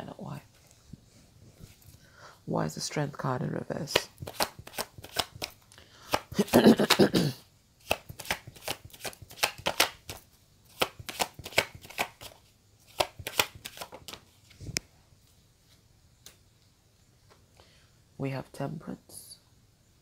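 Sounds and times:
card taps and flicks: 3.9 - 6.3, 7.9 - 10.1, 10.8 - 12.3, 13.0 - 14.2
cards rustling while shuffled: 3.9 - 7.1, 7.8 - 14.6.

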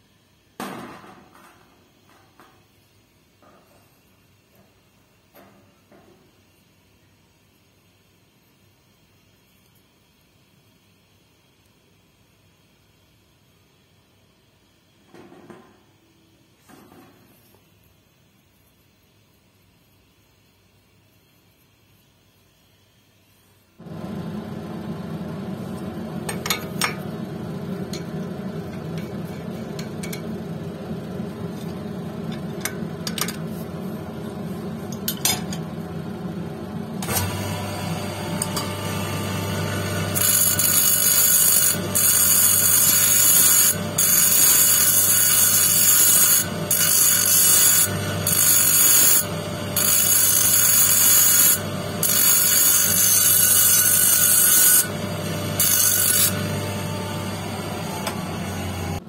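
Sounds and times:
electric motor running: 23.8 - 59.0
stone grinding on wheel: 40.1 - 56.5.

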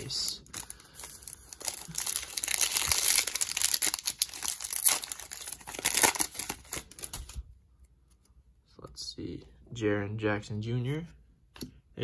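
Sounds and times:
foil wrapper crinkling: 0.0 - 7.4.

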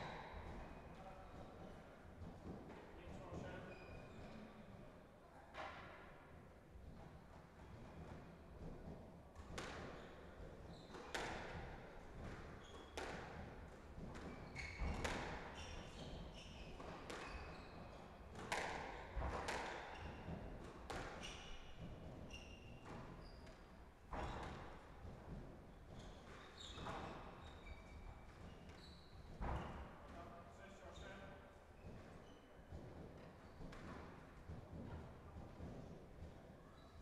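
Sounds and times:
shoes squeaking on wooden floor: 14.2 - 15.0, 25.8 - 29.9.

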